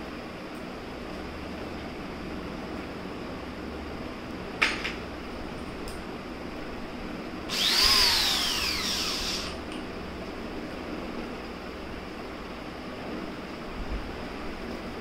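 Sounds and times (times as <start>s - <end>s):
cordless drill motor whine: 7.5s - 9.6s.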